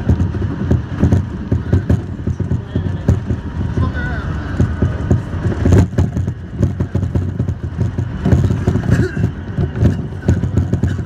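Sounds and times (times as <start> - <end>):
knocking and clatter of running gear: 0.0 - 11.0
train low rumble: 0.0 - 11.0.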